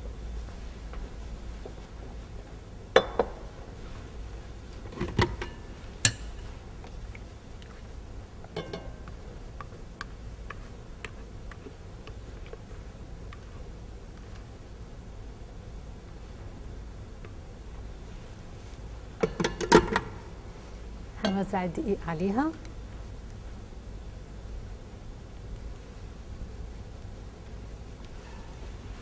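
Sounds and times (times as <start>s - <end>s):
kitchenware clinking on stone counter: 8.6s - 9.1s.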